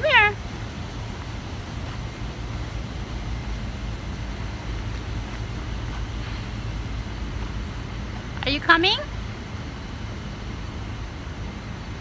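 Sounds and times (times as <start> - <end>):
constant hiss: 0.0 - 12.0
steady low rumble: 0.0 - 12.0.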